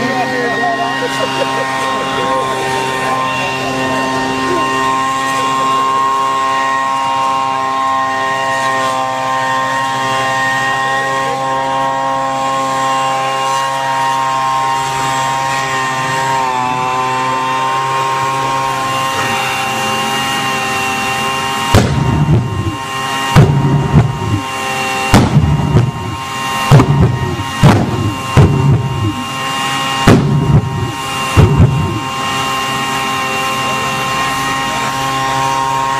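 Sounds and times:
leaf blower whining: 0.0s - 35.9s
jet engine pops and bangs: 21.7s - 22.1s, 25.1s - 26.0s, 26.7s - 28.8s, 30.0s - 30.6s.

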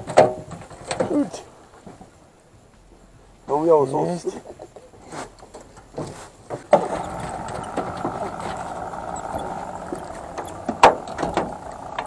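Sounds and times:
fishing reel gears whirring: 6.8s - 12.0s.

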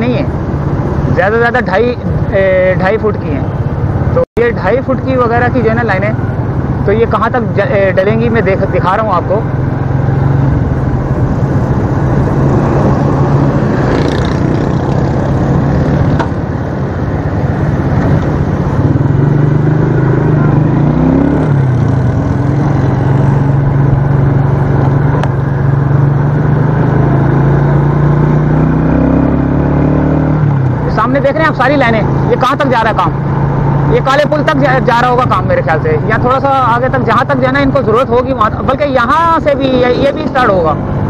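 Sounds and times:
road and traffic noise: 0.0s - 41.0s
motorcycle engine running: 7.7s - 32.4s.

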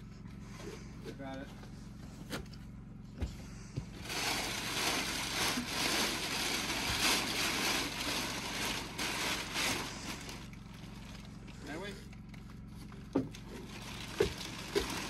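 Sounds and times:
plastic sheet crinkling: 4.0s - 11.5s, 13.6s - 15.0s.

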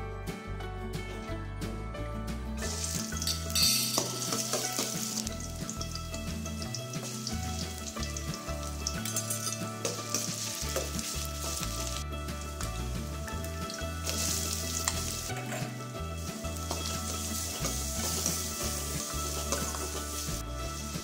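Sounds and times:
garlic sizzling in hot oil: 2.6s - 21.0s
steel spoon scraping pan: 14.0s - 15.9s.

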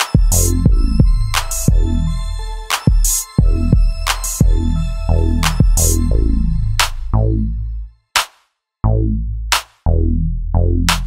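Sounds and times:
deep bass-drum hits: 0.2s - 2.0s, 3.4s - 4.8s, 5.4s - 6.1s
low bass tone: 0.3s - 2.6s, 3.4s - 7.9s, 8.8s - 11.0s
snare hit: 8.2s - 8.4s, 9.5s - 9.8s.

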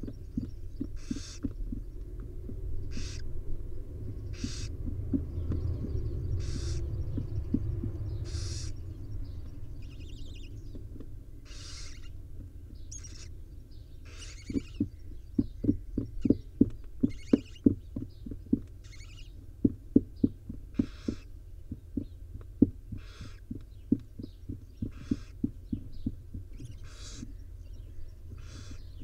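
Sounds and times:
soft low thumps: 0.0s - 29.0s
owl nestlings hissing: 0.8s - 1.6s, 2.8s - 3.3s, 4.2s - 4.8s, 5.8s - 6.9s, 7.6s - 8.9s, 11.4s - 12.2s, 12.8s - 13.4s, 14.0s - 15.0s, 17.0s - 17.8s, 18.8s - 19.3s, 20.7s - 21.3s, 22.9s - 23.5s, 24.8s - 27.4s, 28.4s - 29.0s.

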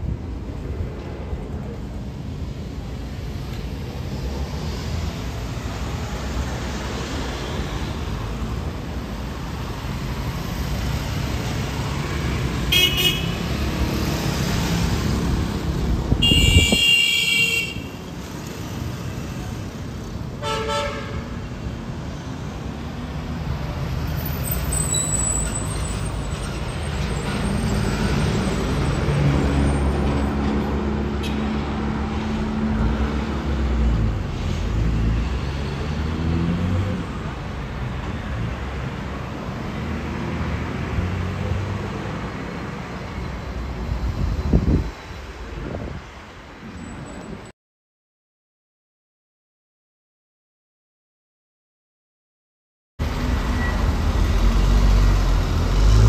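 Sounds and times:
street traffic rumbling: 0.0s - 47.5s, 53.0s - 56.0s
car horns honking: 12.7s - 13.4s, 16.2s - 17.9s.

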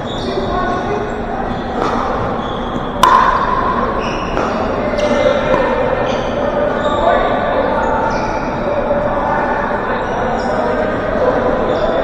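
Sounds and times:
gym noise: 0.0s - 8.9s.

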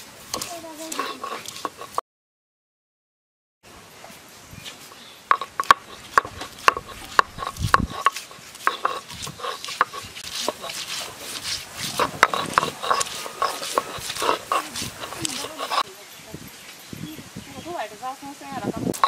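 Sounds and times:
block scraping on slab: 0.3s - 2.0s, 5.3s - 15.9s
block knocking on grinding slab: 5.3s - 15.8s.

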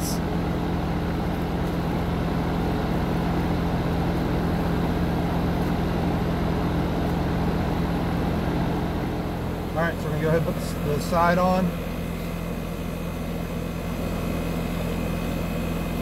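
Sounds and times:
compressor humming: 0.0s - 16.0s
fan air rush: 0.0s - 16.0s.

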